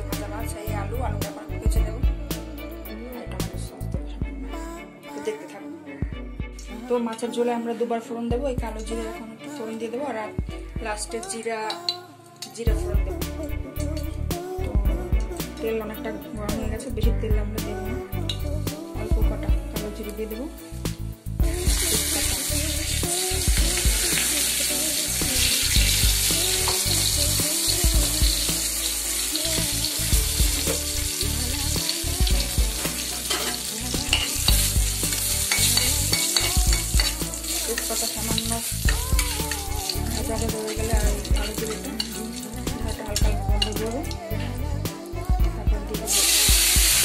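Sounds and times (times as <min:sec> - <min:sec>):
hot oil sizzling: 0:20.7 - 0:44.2, 0:46.0 - 0:47.0
metal spatula stirring: 0:32.7 - 0:43.8.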